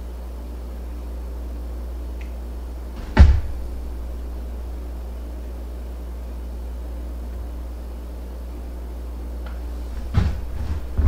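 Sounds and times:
steady low hum: 0.0s - 11.0s
sharp knock: 3.0s - 4.2s.

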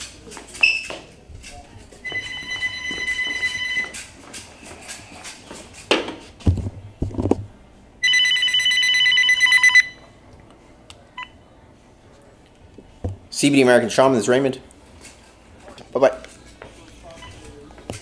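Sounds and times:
phone ringing: 2.0s - 4.1s, 8.0s - 10.1s.

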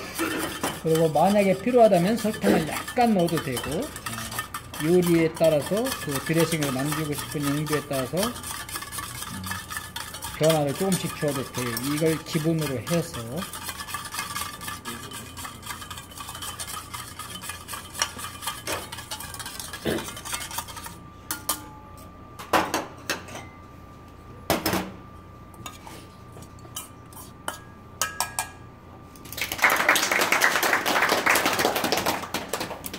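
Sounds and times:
utensils and dishes clinking: 0.0s - 23.7s, 25.5s - 29.5s
wire whisk clicking in metal bowl: 0.7s - 19.7s.

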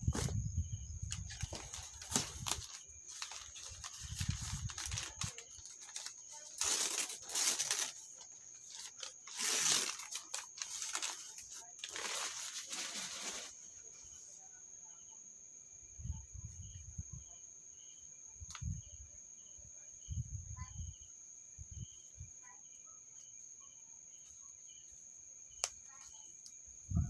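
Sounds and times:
crickets chirring: 0.0s - 27.0s
paper and cardboard rustling: 1.1s - 13.6s.

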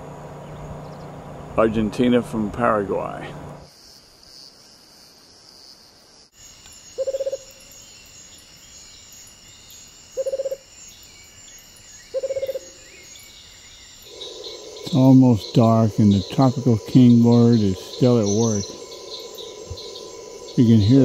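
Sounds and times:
high-pitched insect drone: 6.2s - 21.0s
bird rolling low calls: 14.0s - 21.0s.

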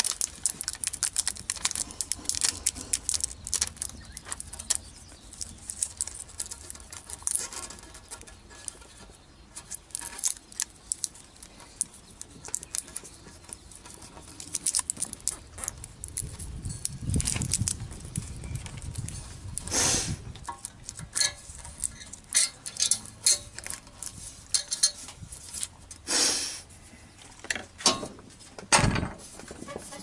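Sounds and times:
aluminium tape crackling: 0.0s - 26.1s.

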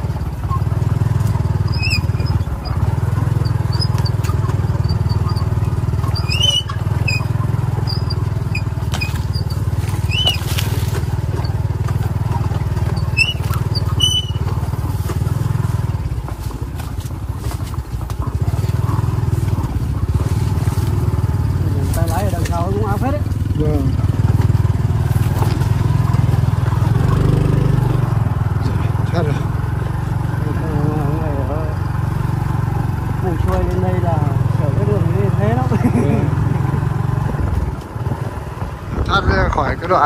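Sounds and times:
vehicle engine running: 0.0s - 40.0s
short high squeaks: 1.5s - 11.7s, 12.5s - 14.9s.

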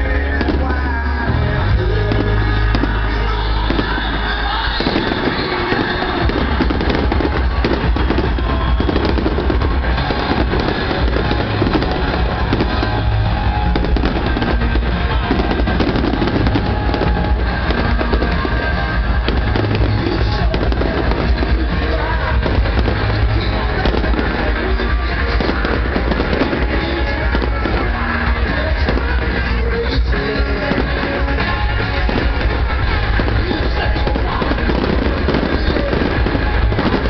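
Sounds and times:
fireworks bursting with sharp bangs: 0.0s - 37.0s
loud music with deep bass: 0.0s - 37.0s.

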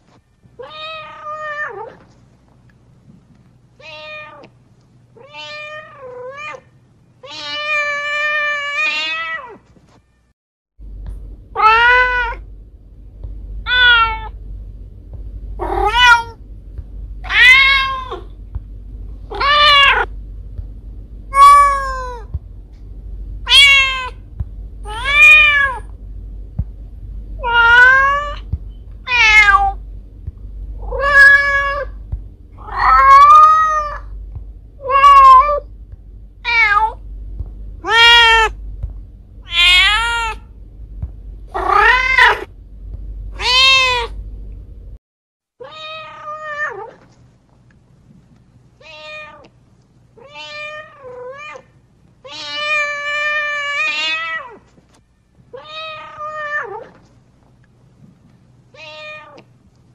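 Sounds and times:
cat meowing: 15.6s - 16.4s, 17.2s - 18.3s, 21.3s - 22.3s, 23.4s - 24.2s, 27.4s - 29.8s, 30.8s - 32.0s, 32.6s - 34.1s, 34.8s - 35.7s, 36.4s - 37.0s, 37.8s - 38.6s, 39.4s - 40.5s, 41.5s - 42.5s, 43.4s - 44.2s, 45.6s - 47.0s, 58.8s - 59.5s.

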